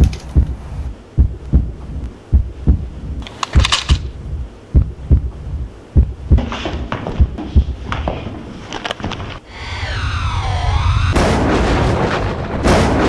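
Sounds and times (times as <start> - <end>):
heartbeat double thumps: 0.0 - 8.0.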